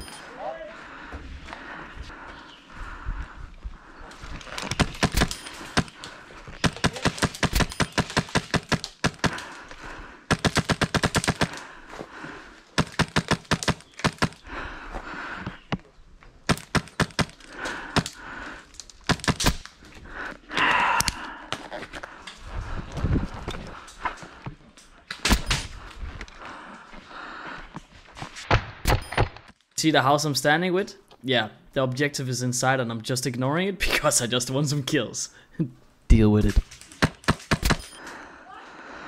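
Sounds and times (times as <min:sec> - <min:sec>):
airsoft rifle firing rapid bursts: 0:06.6 - 0:09.4, 0:10.3 - 0:11.6, 0:12.8 - 0:14.4, 0:16.5 - 0:17.4.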